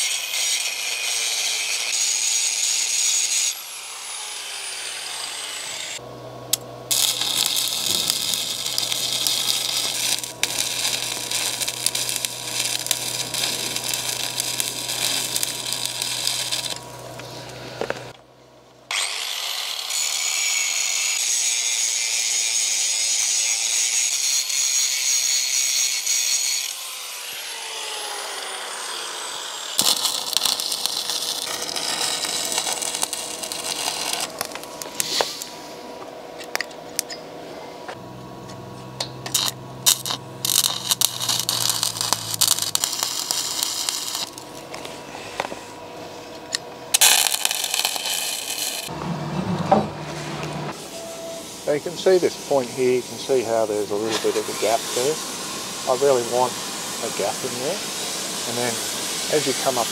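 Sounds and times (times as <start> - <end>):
welding arc crackling: 0.0 - 3.6, 5.7 - 18.2, 29.6 - 35.6, 39.2 - 45.6, 46.4 - 49.0, 51.6 - 59.9
angle grinder grinding steel: 0.0 - 18.2, 18.9 - 35.8, 39.0 - 59.9
low hum: 6.0 - 18.9, 29.9 - 47.7.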